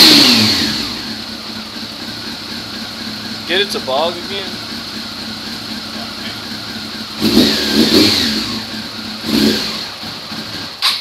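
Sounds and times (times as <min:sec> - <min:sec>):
engine revving and stuttering: 0:00.0 - 0:01.2, 0:06.2 - 0:11.0
motorcycle engine idling: 0:00.0 - 0:11.0.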